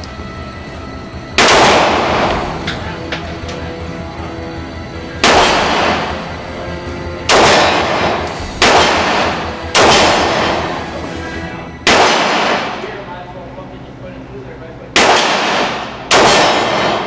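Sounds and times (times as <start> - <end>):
pistol shots echoing indoors: 1.4 - 3.4, 5.2 - 6.4, 7.2 - 11.0, 11.8 - 13.0, 14.9 - 17.0.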